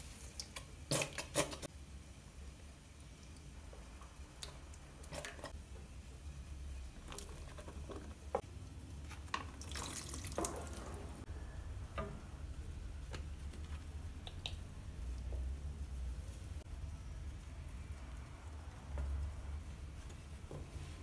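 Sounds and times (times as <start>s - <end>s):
low steady hum: 1.7s - 21.0s
wet drips and plops: 3.0s - 5.6s, 9.3s - 11.2s.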